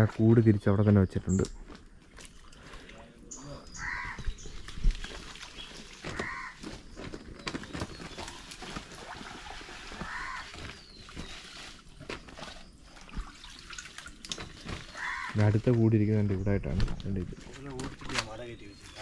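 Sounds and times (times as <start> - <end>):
water splashing: 2.1 - 6.7, 7.9 - 16.2
bird calling: 2.7 - 4.7, 5.5 - 8.2, 10.0 - 11.4, 14.8 - 15.5
dry leaves rustling: 3.8 - 12.6, 14.4 - 15.8.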